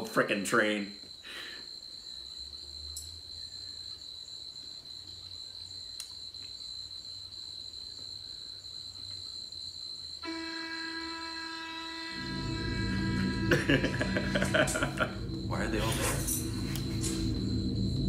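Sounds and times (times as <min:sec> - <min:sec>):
crickets trilling: 0:00.0 - 0:18.0
steady pitched tone: 0:10.2 - 0:18.0
low rumble: 0:12.1 - 0:18.0.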